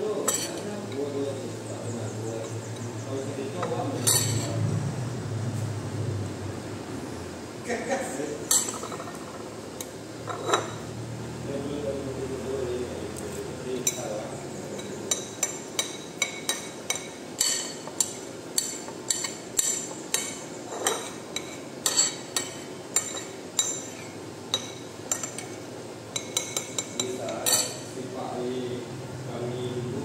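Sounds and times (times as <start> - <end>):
cutlery clinking against dish: 0.2 - 1.1, 3.6 - 4.6, 8.5 - 9.4, 10.2 - 10.8, 13.8 - 14.1, 14.7 - 27.9.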